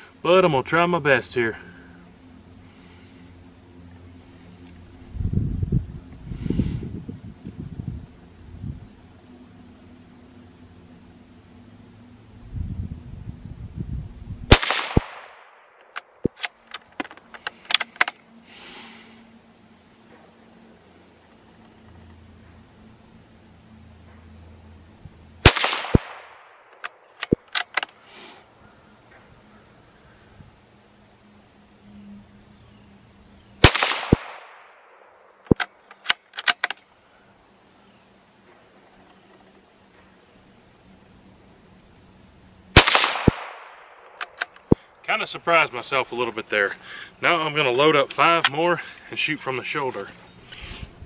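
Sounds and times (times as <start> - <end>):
rifle shot with echo: 14.5 - 16.2, 25.4 - 26.8, 33.6 - 35.0, 42.8 - 44.3
sharp clicks: 14.6 - 18.2, 25.5 - 28.0, 33.6 - 36.9, 42.9 - 44.8
soft hiss: 17.2 - 27.0.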